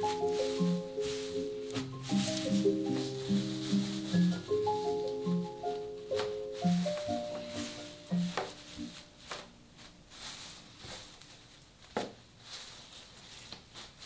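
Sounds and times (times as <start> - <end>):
soft marimba-like music: 0.0 - 9.1
dry leaves rustling and crackling: 0.0 - 14.0.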